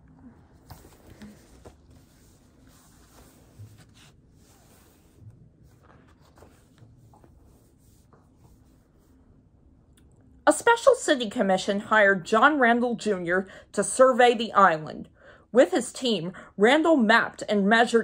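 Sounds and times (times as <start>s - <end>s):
book pages turning: 0.5s - 8.8s.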